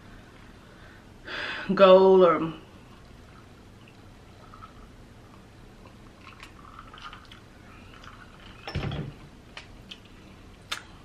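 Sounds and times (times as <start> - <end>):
person sipping and swallowing: 3.2 - 8.5.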